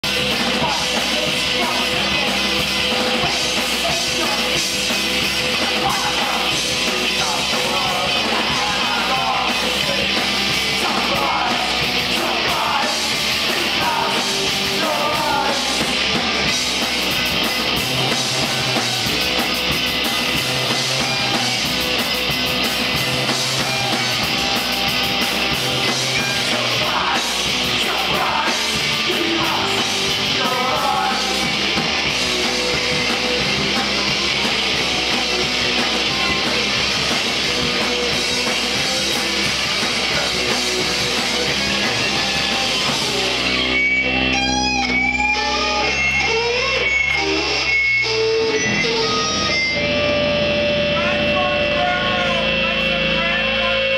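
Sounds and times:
rock band playing live: 0.0 - 53.9
person singing: 0.2 - 16.0, 25.9 - 31.8.

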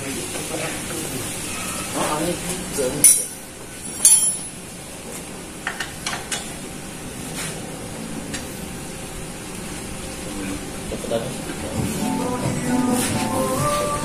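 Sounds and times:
hand tools clinking on metal: 3.0 - 4.6.

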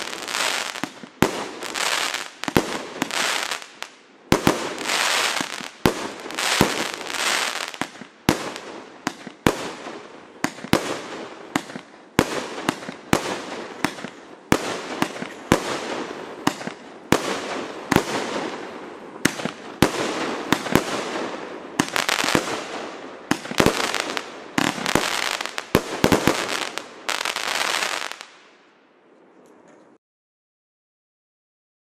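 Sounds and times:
firework crackling hiss: 0.0 - 9.9
firework sharp bursts: 0.0 - 28.4.

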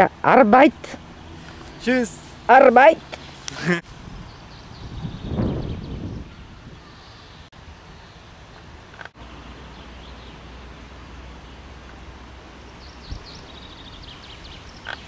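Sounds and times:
wind rumble on microphone: 3.9 - 7.5, 12.8 - 14.9.

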